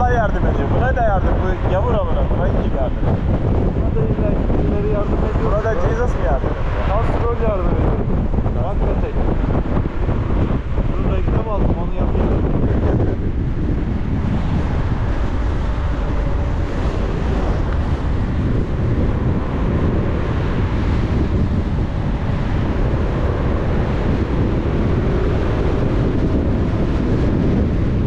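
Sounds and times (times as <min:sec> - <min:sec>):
car road and engine rumble: 0:00.0 - 0:28.0
wind buffeting microphone: 0:00.0 - 0:28.0.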